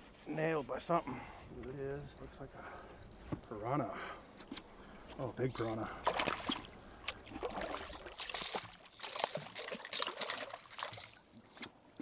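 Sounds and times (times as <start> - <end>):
fish splashing at water surface: 5.6 - 11.6.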